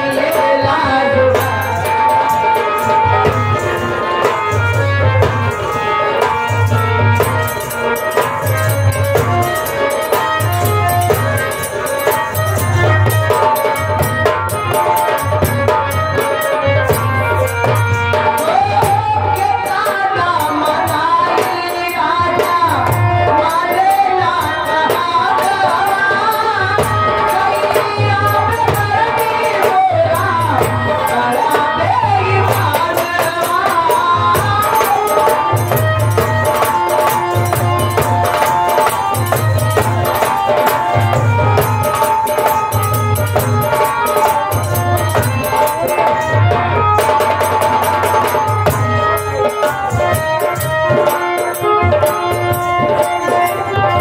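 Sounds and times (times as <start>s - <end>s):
person singing: 0.0s - 4.4s
hand drum playing: 0.0s - 54.0s
held-note melody: 34.6s - 54.0s.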